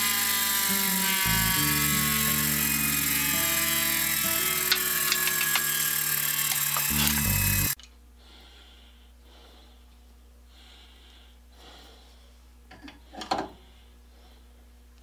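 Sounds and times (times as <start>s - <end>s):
bench grinder grinding steel: 0.0s - 7.8s
threading die rasping: 0.0s - 7.8s
sharp metallic clicks: 1.3s - 7.9s.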